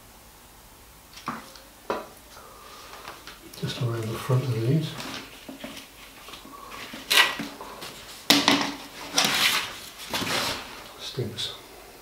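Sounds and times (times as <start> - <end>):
plastic rubbing and crinkling: 2.9 - 11.0.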